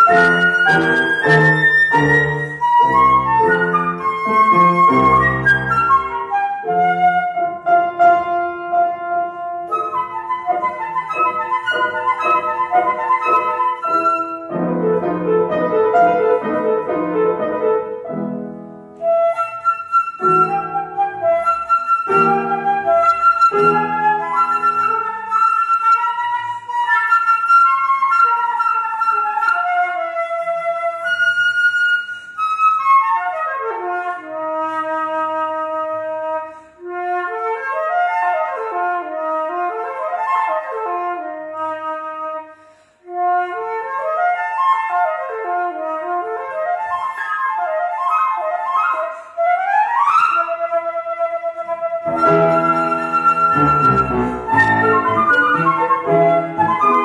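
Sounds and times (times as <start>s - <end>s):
flute fast runs: 0.0s - 6.6s, 51.3s - 57.0s
piano chords: 0.0s - 19.5s, 20.2s - 25.5s, 52.0s - 57.0s.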